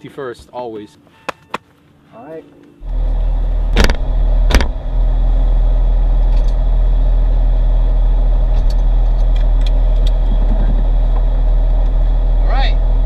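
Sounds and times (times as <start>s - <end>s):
car engine running: 2.8s - 13.0s
sharp knocks: 3.8s - 4.8s.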